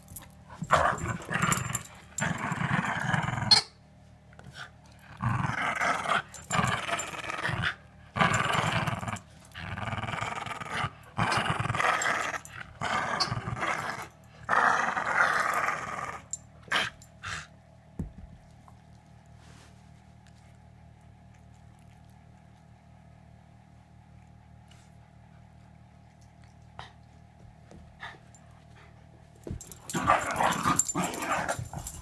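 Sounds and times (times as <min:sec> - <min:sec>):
dogs play-growling: 0:00.0 - 0:03.7, 0:04.4 - 0:17.5, 0:26.2 - 0:32.0.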